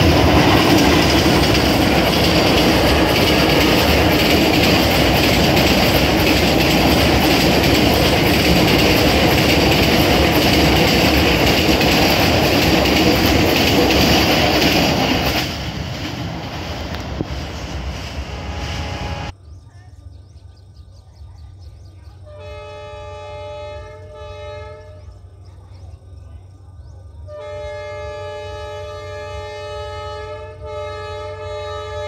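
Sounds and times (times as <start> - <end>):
train coaches rolling on rails: 0.0 - 19.3.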